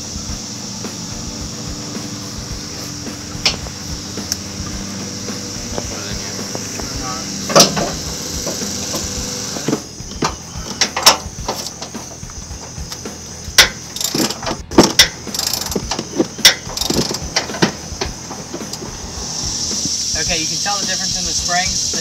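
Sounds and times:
wrench clicking on metal: 0:12.9 - 0:17.5.

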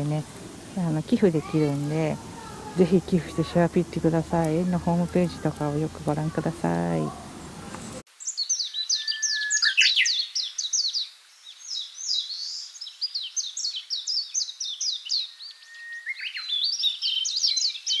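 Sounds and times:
songbirds chirping: 0:00.0 - 0:18.0.

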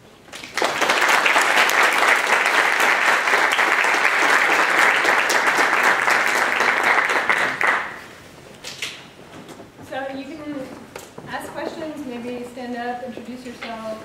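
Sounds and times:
audience applauding: 0:00.3 - 0:08.2.

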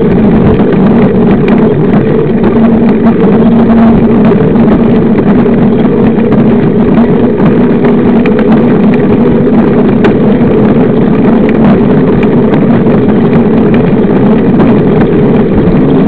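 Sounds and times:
bike riding on asphalt hum: 0:00.0 - 0:16.0.

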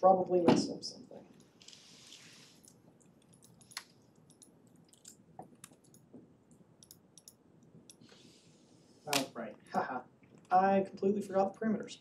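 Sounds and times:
low room hiss: 0:00.0 - 0:12.0
keyboard typing clicks: 0:03.0 - 0:08.0.

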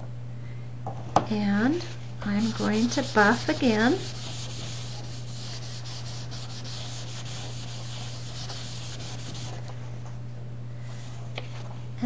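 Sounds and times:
low electrical hum: 0:00.0 - 0:12.0
paper towel rubbing on cardstock: 0:02.3 - 0:09.7.

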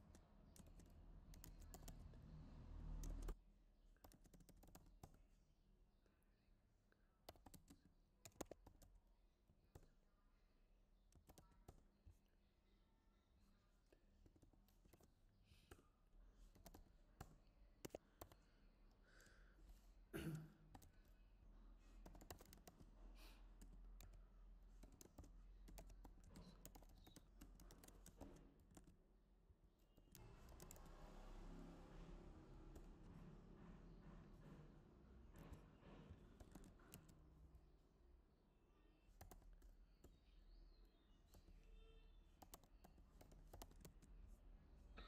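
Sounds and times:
typing on computer keyboard: 0:00.0 - 0:02.2, 0:03.0 - 0:03.4, 0:04.0 - 0:05.2, 0:07.3 - 0:09.0, 0:11.1 - 0:11.9, 0:16.5 - 0:18.4, 0:22.0 - 0:22.9, 0:23.6 - 0:29.0, 0:30.0 - 0:30.9, 0:36.2 - 0:37.4, 0:39.2 - 0:40.2, 0:42.4 - 0:44.1.

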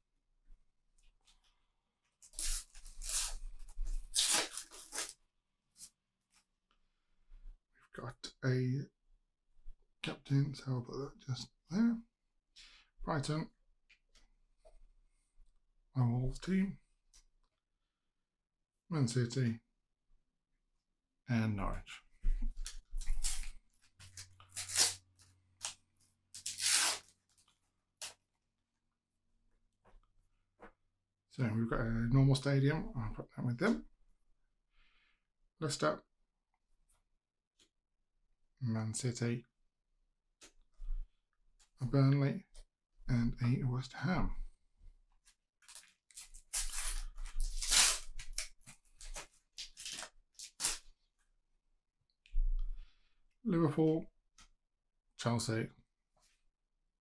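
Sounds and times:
paper wrapper ripping: 0:02.2 - 0:03.4, 0:04.0 - 0:05.2, 0:22.6 - 0:25.0, 0:26.4 - 0:27.4, 0:45.6 - 0:50.9
sticker packet tearing and rustling: 0:04.0 - 0:05.2, 0:22.6 - 0:25.8, 0:26.4 - 0:27.5, 0:45.6 - 0:50.8.

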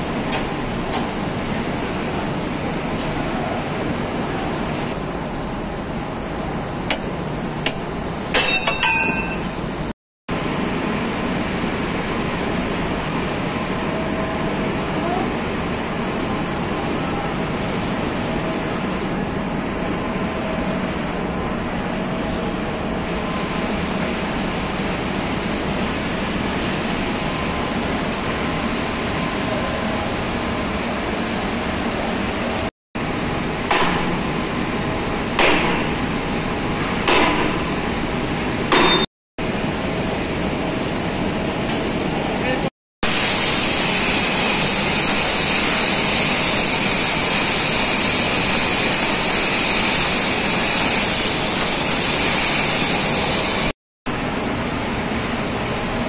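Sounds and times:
metal tool clinks: 0:08.4 - 0:09.6
industrial machinery din: 0:33.0 - 0:39.1.

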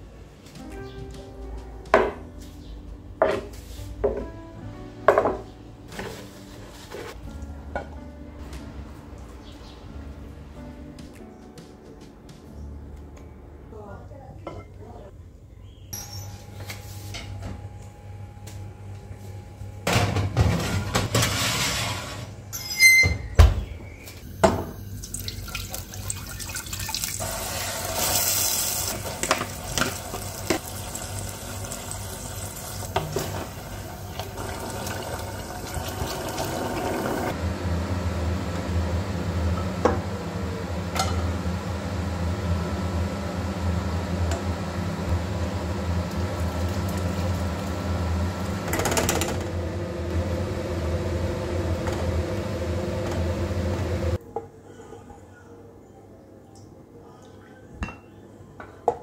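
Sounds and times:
wooden spoon stirring and scraping: 0:05.9 - 0:07.2
vegetables sizzling in a pot: 0:24.3 - 0:37.4.

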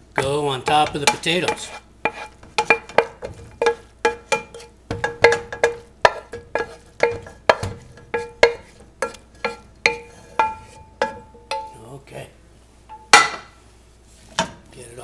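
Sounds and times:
vegetables scraped into pot: 0:00.2 - 0:04.8, 0:06.1 - 0:10.9
utensil knocking on metal pan: 0:00.2 - 0:11.8, 0:12.9 - 0:13.5.

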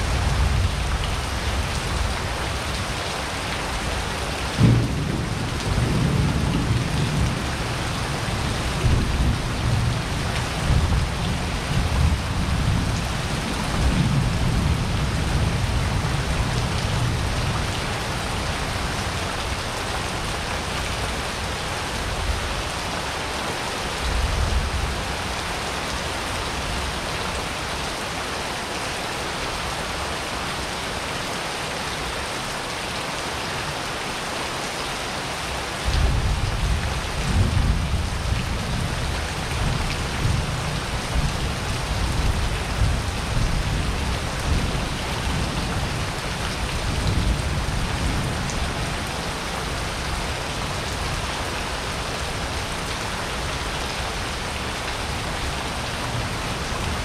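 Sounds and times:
steady rain pouring: 0:00.0 - 0:57.0
low thunder rumbling: 0:04.6 - 0:17.5.

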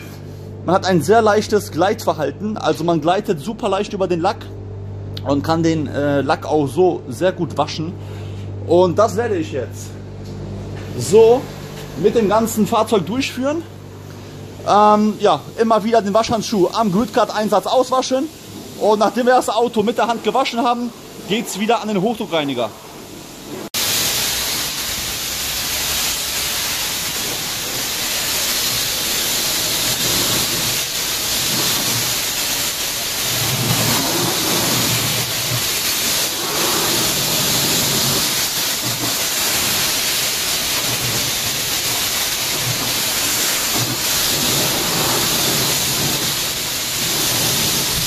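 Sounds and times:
pressure washer jet spraying: 0:14.7 - 0:48.0.

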